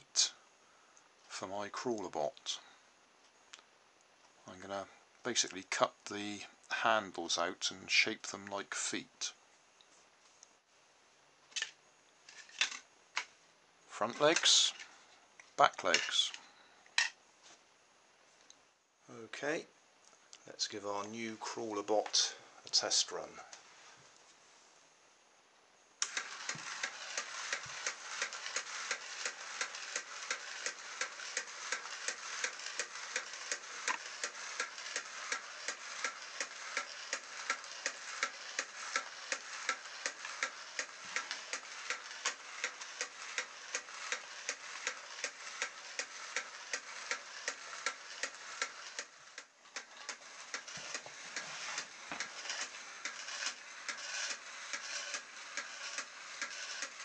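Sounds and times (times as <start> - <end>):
small motor and gears whirring: 26.0 - 57.0.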